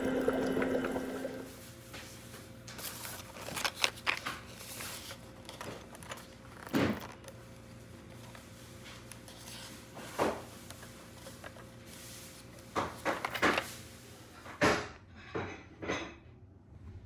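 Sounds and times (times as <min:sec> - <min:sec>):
faint steady hum: 0:00.0 - 0:02.0.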